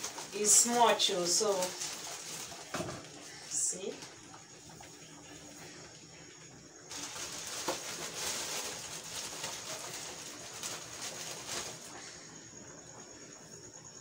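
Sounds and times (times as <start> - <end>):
plastic bag crinkling: 0.0 - 3.2, 6.9 - 12.0
dried leaves shifting in a bag: 0.0 - 4.2, 6.9 - 12.2.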